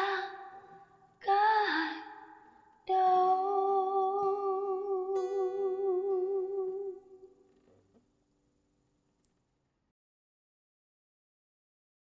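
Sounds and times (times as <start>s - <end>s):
woman singing a long note: 2.9s - 7.3s.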